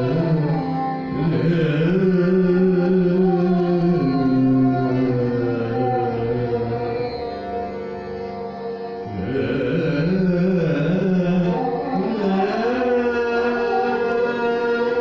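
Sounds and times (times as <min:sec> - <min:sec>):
man singing in long glides: 0:00.0 - 0:07.8, 0:09.0 - 0:15.0
tanpura drone: 0:00.0 - 0:15.0.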